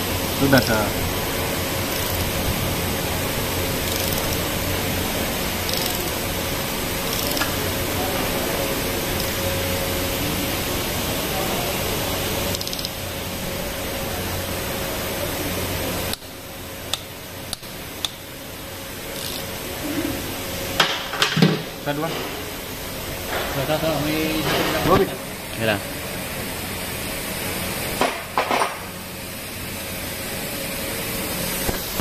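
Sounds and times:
socket ratchet clicks: 1.9s - 2.3s, 3.9s - 4.4s, 5.6s - 6.1s, 7.1s - 7.5s, 12.5s - 13.0s, 19.2s - 19.4s.

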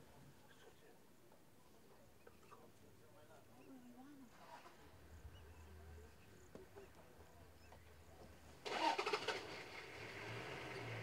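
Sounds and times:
faint low hum: 0.0s - 8.6s
vehicle engine cranking and running: 8.6s - 11.0s.

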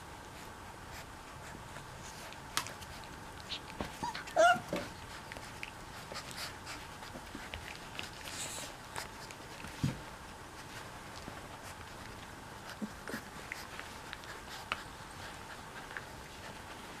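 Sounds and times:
paws scuffling on blankets: 0.3s - 17.0s
puppy yelping: 3.4s - 5.0s.

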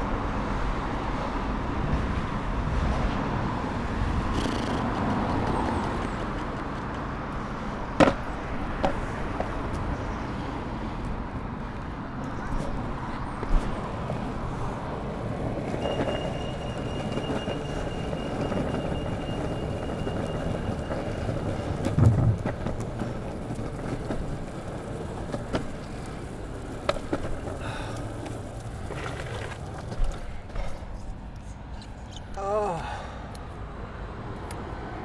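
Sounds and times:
longboard wheels rumbling on pavement: 0.0s - 31.3s
wheels clicking over cracks: 4.1s - 9.9s, 13.4s - 31.1s.

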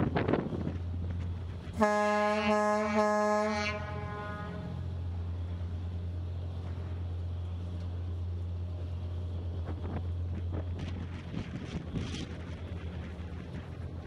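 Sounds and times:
wind buffeting microphone: 0.0s - 1.8s, 8.5s - 14.0s
boat engine droning: 0.0s - 14.0s.

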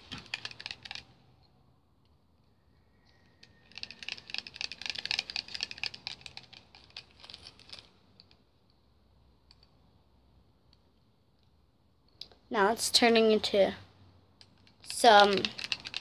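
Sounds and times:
rapid light clicks and taps: 14.4s - 16.0s.

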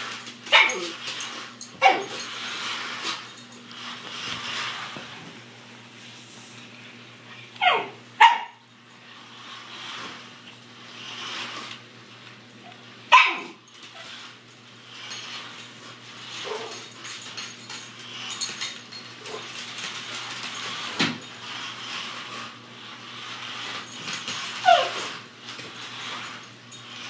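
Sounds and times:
small dog barking: 7.6s - 8.6s, 13.1s - 13.6s.

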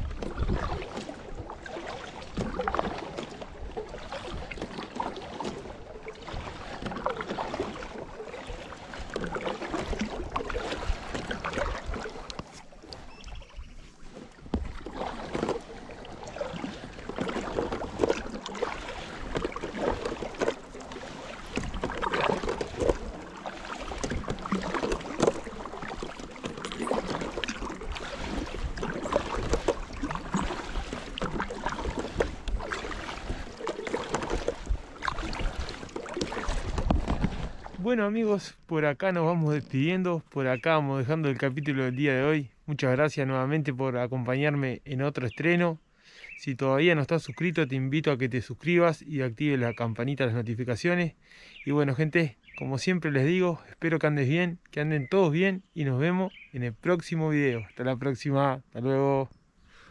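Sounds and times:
paddle splashing in water: 0.0s - 38.2s
water washing along hull: 0.0s - 42.3s.

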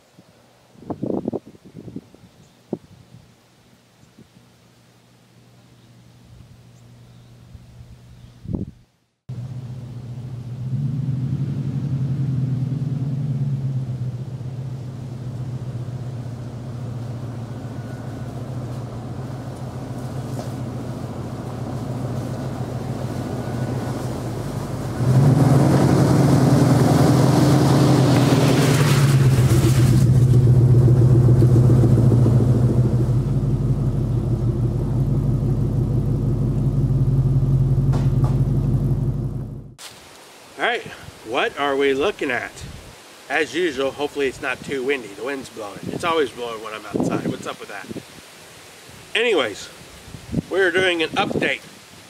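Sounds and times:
car engine passing: 9.3s - 39.8s
tyres crunching over leaves: 18.3s - 24.8s.

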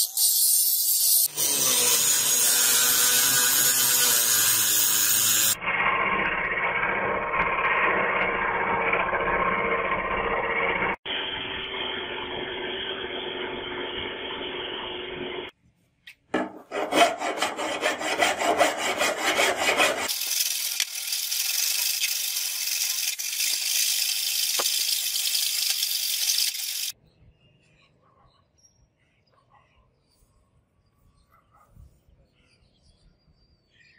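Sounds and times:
file scraping steel blade: 0.0s - 5.6s, 16.4s - 26.9s
angle grinder grinding steel: 0.0s - 15.3s, 16.4s - 27.0s.

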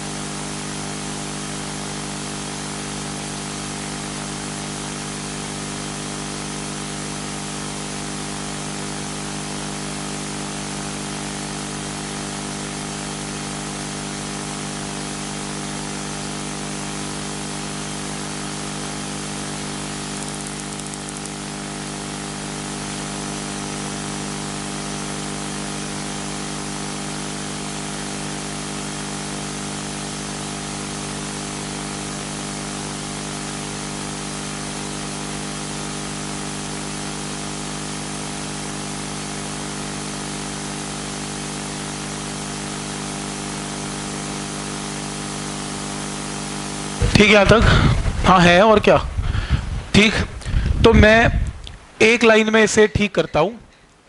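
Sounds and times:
low electrical hum: 18.0s - 22.5s, 46.4s - 54.0s
constant hiss: 19.8s - 22.5s, 46.9s - 54.0s.

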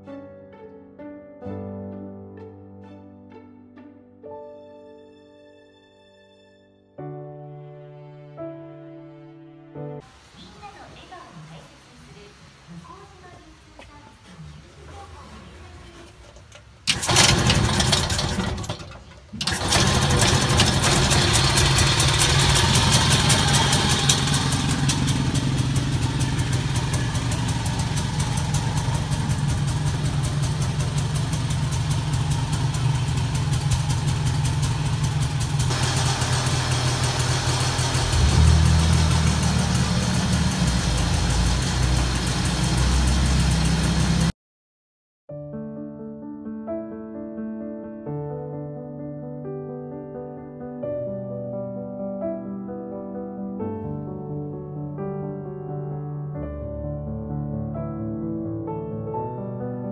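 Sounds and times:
two-stroke engine starting and running: 16.9s - 44.3s.

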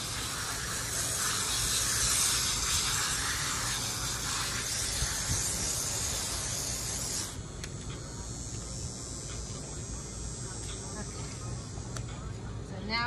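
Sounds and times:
hose nozzle spraying water: 0.0s - 7.4s.

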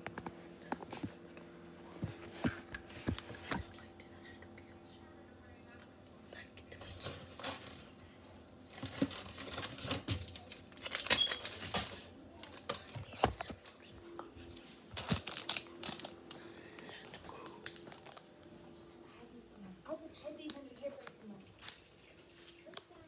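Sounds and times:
crinkling and rustling: 6.8s - 7.9s, 8.7s - 13.9s, 14.6s - 16.4s, 17.4s - 18.6s.

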